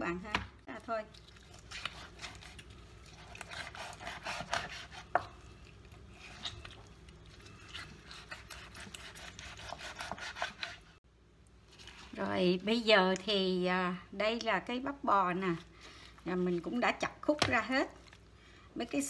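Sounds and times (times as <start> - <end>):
knife sawing through meat: 1.6 - 5.2, 7.6 - 10.9.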